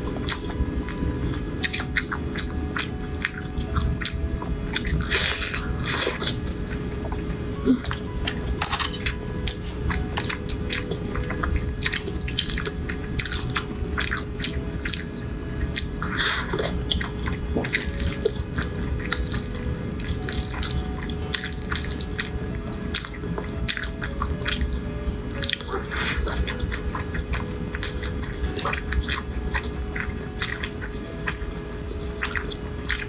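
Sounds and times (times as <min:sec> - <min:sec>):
quiet background music: 0:00.0 - 0:33.0
chewing and wet mouth clicks: 0:15.7 - 0:24.8, 0:32.2 - 0:33.0.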